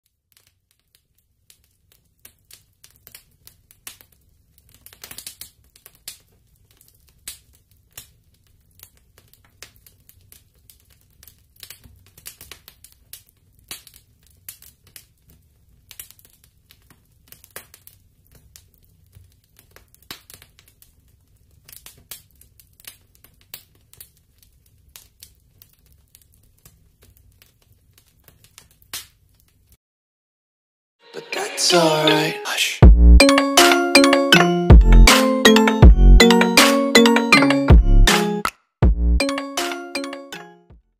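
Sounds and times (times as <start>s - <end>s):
fire crackling: 0.1s - 29.8s.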